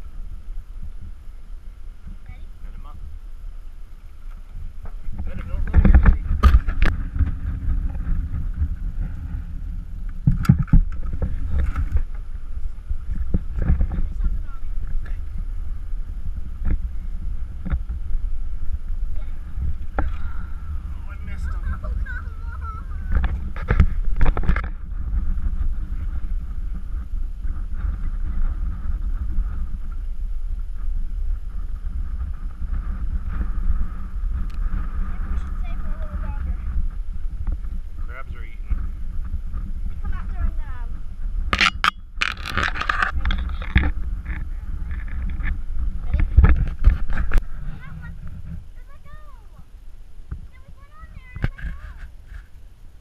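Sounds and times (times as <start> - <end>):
wind buffeting microphone: 0.0 - 53.0.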